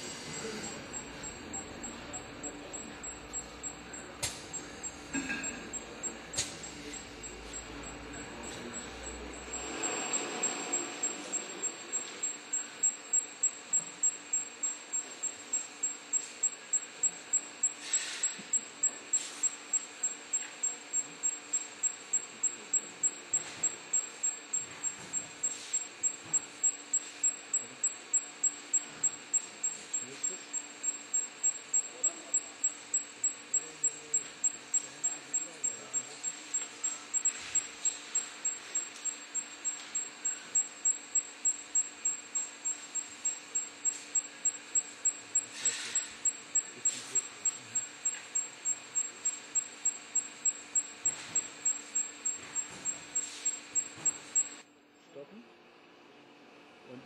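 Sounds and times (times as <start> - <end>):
faint low hum: 0.0 - 54.6
pulsing high-pitched machine tone: 0.0 - 54.6
faint hiss: 45.4 - 47.8.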